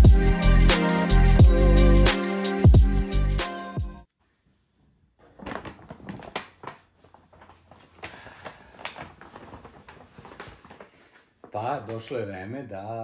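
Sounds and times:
background music: 0:00.0 - 0:04.1
paper bag rustling: 0:05.2 - 0:12.0.

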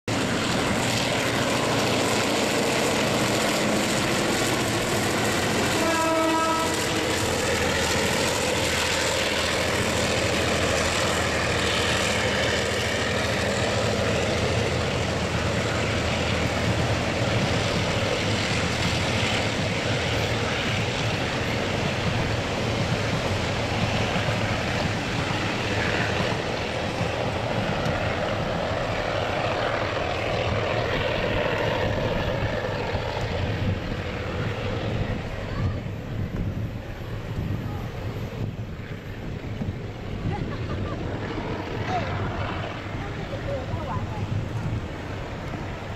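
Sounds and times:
freight train wheel and rail noise: 0:00.0 - 0:45.9
locomotive horn blast: 0:05.6 - 0:07.0.

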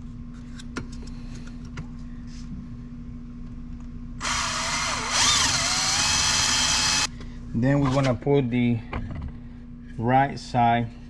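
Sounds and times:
electric drill drilling: 0:04.2 - 0:07.1.

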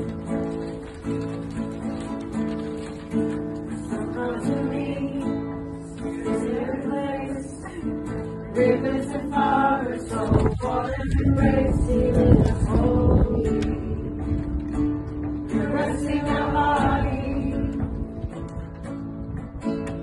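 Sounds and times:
acoustic guitar strumming: 0:00.0 - 0:20.0
group of voices singing: 0:03.8 - 0:14.4, 0:15.4 - 0:18.0.

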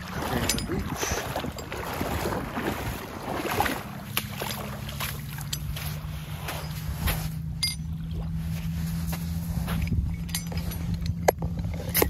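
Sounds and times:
jet ski engine idling: 0:00.0 - 0:12.0
water splashing around hull: 0:00.0 - 0:12.0.

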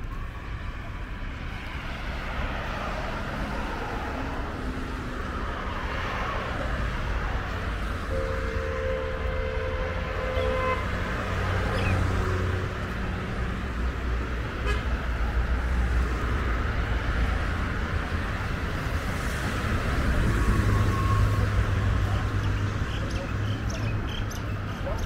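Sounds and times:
road traffic passing: 0:00.0 - 0:25.0
car horn: 0:08.0 - 0:11.9, 0:14.6 - 0:15.0.

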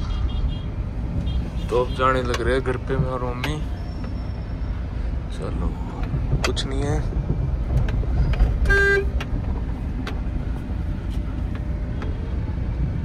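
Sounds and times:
car engine and road rumble: 0:00.0 - 0:13.0
car horn toot: 0:08.6 - 0:09.2.

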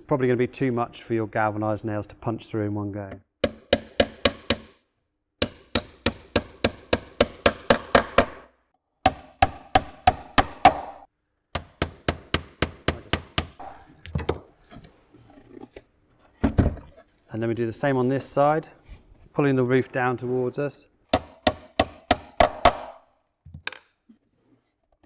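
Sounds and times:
hammer striking nails into metal: 0:03.4 - 0:04.8, 0:05.4 - 0:11.0.

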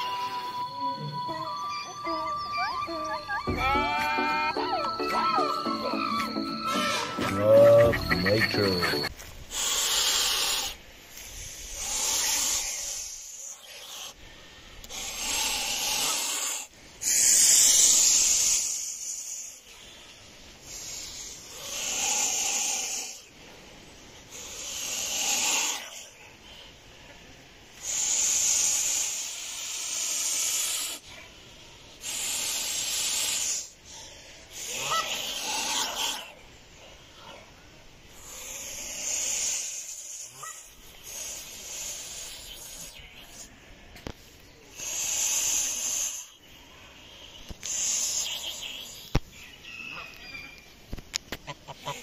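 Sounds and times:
geese hissing: 0:01.3 - 0:14.2, 0:14.9 - 0:19.8, 0:27.8 - 0:31.1, 0:32.0 - 0:36.4, 0:38.1 - 0:43.5, 0:44.7 - 0:46.4, 0:47.0 - 0:49.1.

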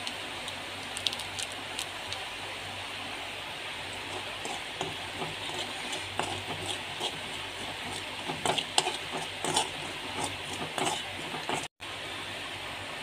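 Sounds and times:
hot oil sizzling: 0:00.0 - 0:12.0
spoon scraping a frying pan: 0:04.0 - 0:11.7.

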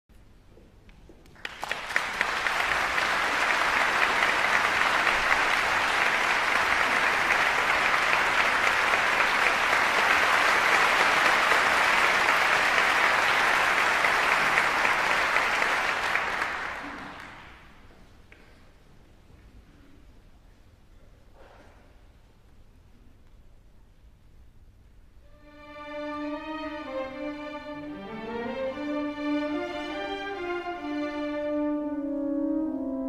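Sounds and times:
audience applauding: 0:01.3 - 0:17.9.

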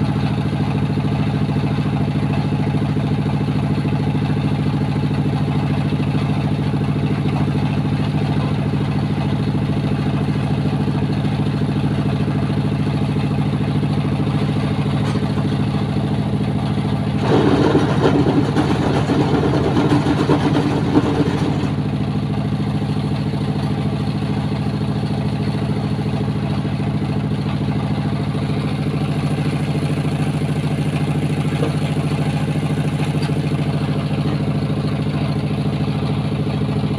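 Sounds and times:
engine humming: 0:10.2 - 0:36.9.

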